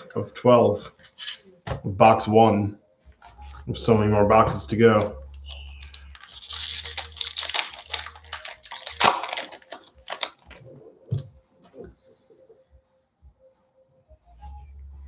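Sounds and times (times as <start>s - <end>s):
foil wrapper tearing and crinkling: 5.5s - 10.6s.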